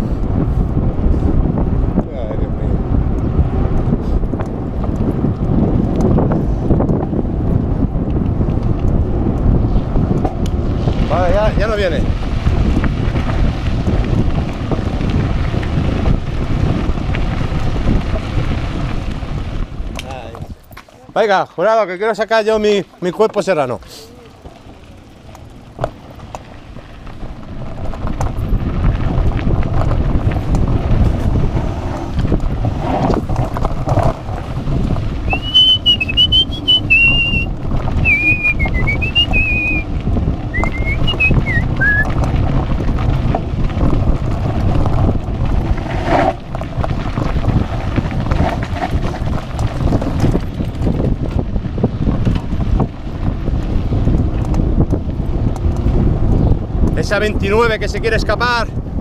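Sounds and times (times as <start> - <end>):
wind on microphone: 0.0 - 21.4, 22.3 - 59.0
bike rumbling on dirt track: 0.0 - 59.0
person whistling a tune: 35.3 - 39.8, 40.6 - 42.1.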